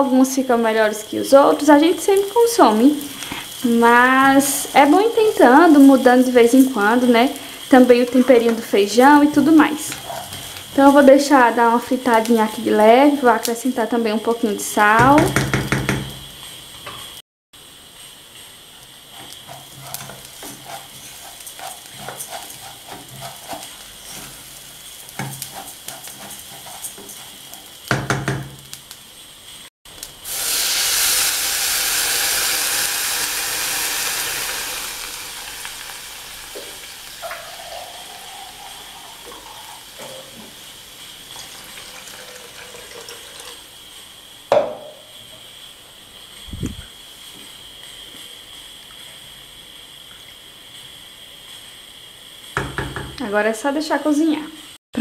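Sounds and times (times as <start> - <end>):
gentle simmer: 0.0 - 55.0
rice frying in a saucepan: 0.0 - 55.0
water hissing on hot rice: 0.9 - 16.8, 17.6 - 52.8
sharp knock: 15.0 - 16.2, 44.5 - 45.0
spatula scraping a pan: 19.1 - 27.8.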